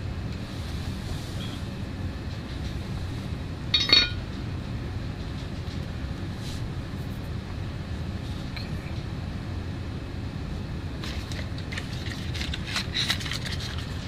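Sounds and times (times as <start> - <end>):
low background rumble: 0.0 - 14.0
metal tool clinking on workbench: 3.8 - 4.2.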